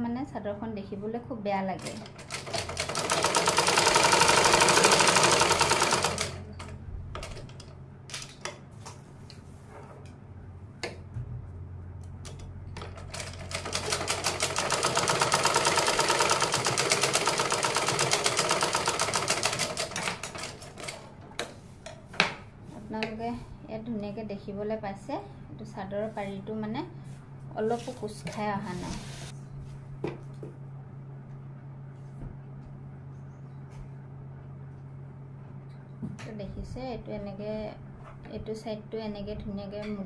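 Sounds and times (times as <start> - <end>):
sewing machine clattering: 1.8 - 8.2, 12.8 - 21.0.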